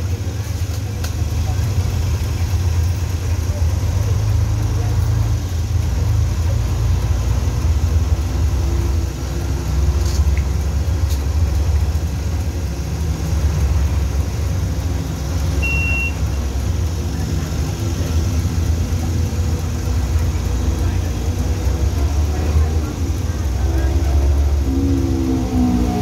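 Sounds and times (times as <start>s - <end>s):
bus engine droning: 0.0s - 26.0s
road noise: 0.0s - 26.0s
short high beep: 15.6s - 16.3s.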